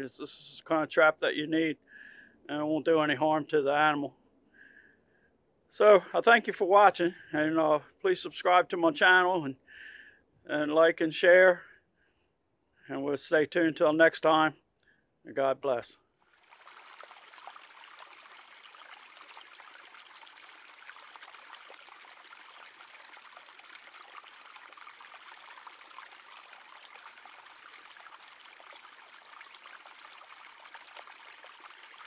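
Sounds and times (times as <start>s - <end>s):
creek trickling over stones: 16.2s - 32.0s.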